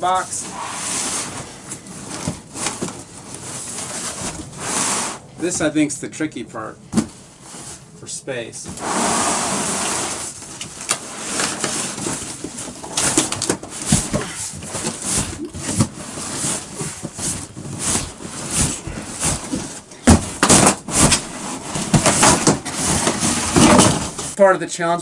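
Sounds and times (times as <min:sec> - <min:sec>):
cardboard box scraping and knocking: 0:11.0 - 0:24.4.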